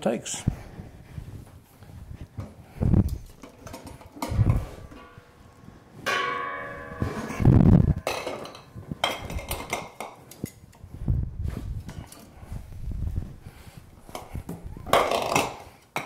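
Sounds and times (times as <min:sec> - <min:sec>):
metal pot ringing: 0:04.8 - 0:09.7.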